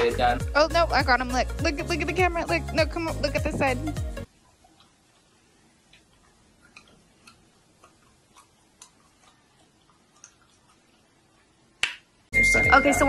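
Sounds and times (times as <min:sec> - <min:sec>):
faint room hiss: 0:04.2 - 0:13.0.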